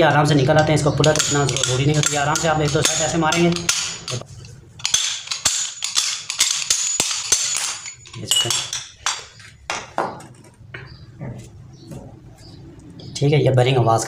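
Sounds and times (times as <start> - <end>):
sharp metal knocks: 0.6 - 10.9.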